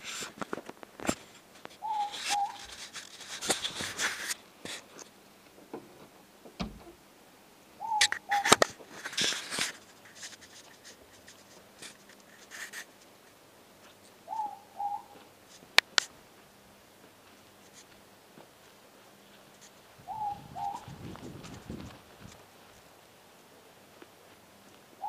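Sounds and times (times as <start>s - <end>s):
crisp rustles and clicks: 0.0s - 6.1s, 8.2s - 14.2s
owl two-note hoot: 1.8s - 2.6s, 7.8s - 8.4s, 14.3s - 15.2s, 20.0s - 21.0s.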